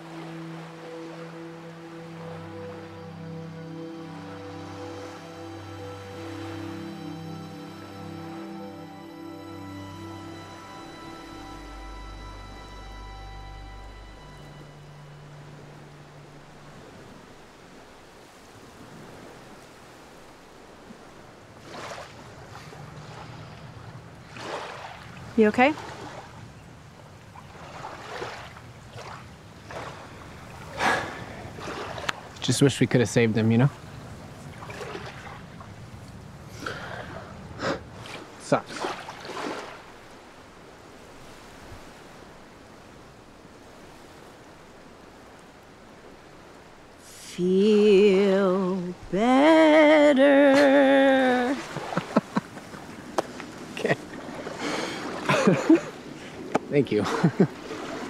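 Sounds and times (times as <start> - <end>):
ocean surf: 0.0 - 58.0
waves lapping on a shore: 0.0 - 58.0.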